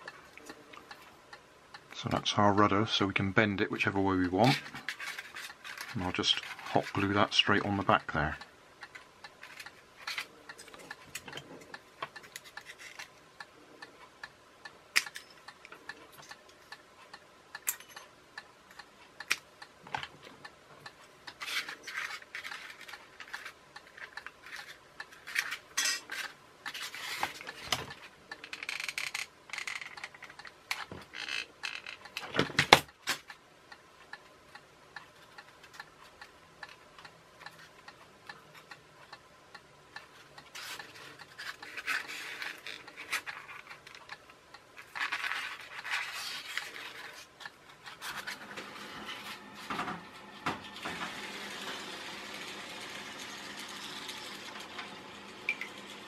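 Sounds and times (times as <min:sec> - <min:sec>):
rustling: 0:44.8 - 0:48.5.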